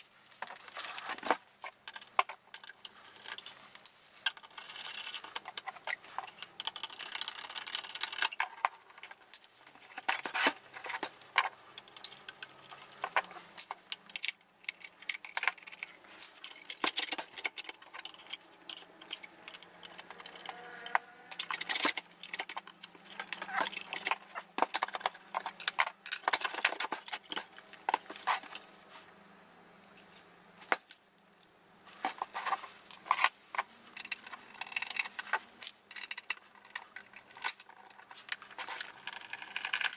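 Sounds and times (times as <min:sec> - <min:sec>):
metal tools clinking and rattling: 0:04.3 - 0:28.6.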